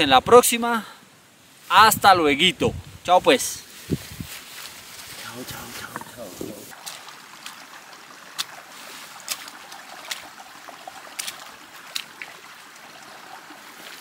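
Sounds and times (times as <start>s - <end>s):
footsteps in wet ground: 3.6s - 12.8s
shallow water trickling: 3.7s - 14.0s.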